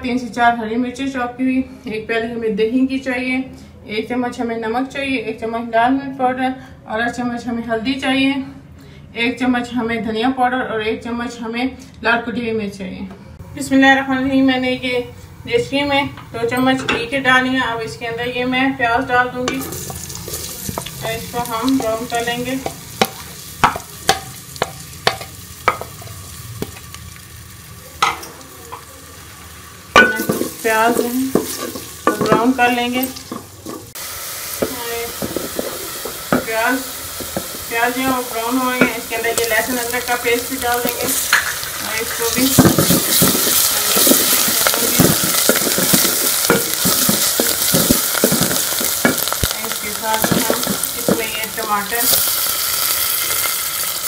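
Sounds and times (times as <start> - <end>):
onions sizzling in pot: 15.5 - 54.0
spoon striking metal pot: 16.2 - 17.1, 21.8 - 26.8, 30.0 - 33.9, 37.2 - 39.5, 42.5 - 49.5, 50.1 - 51.4.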